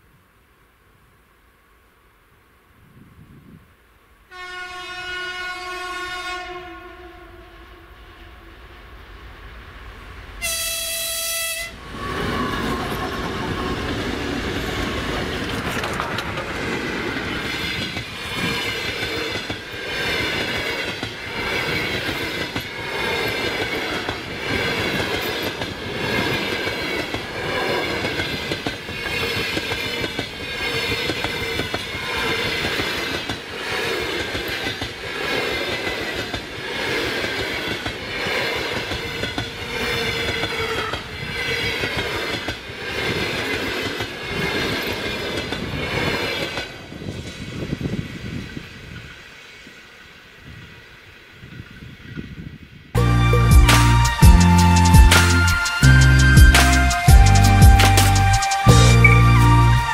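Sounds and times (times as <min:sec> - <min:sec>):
wheels clacking over rail joints: 0:11.9 - 0:47.5.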